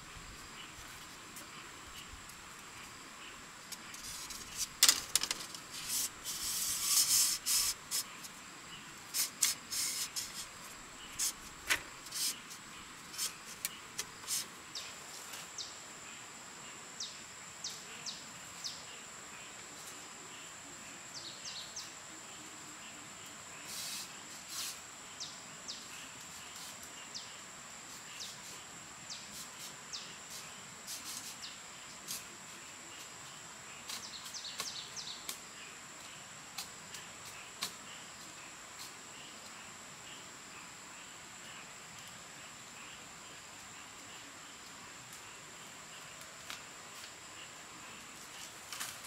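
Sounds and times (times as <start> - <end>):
high-pitched insect drone: 5.8 - 8.1.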